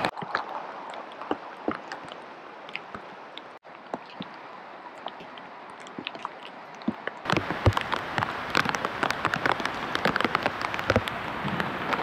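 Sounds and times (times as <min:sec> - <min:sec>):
rain pattering: 0:00.0 - 0:12.0.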